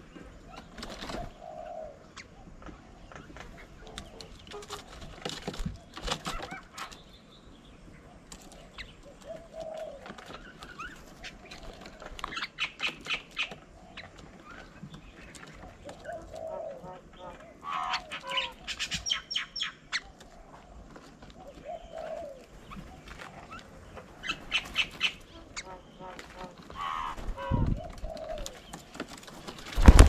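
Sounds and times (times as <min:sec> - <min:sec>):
mynas chattering calls: 0:15.7 - 0:20.2, 0:21.6 - 0:28.6
wing flaps: 0:26.2 - 0:30.0.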